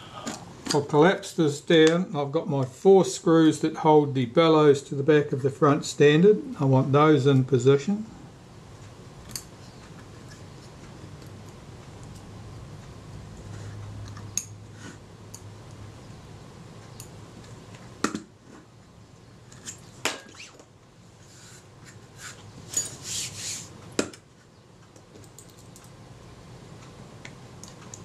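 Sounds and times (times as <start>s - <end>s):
scraping rustle: 21.2s - 23.8s.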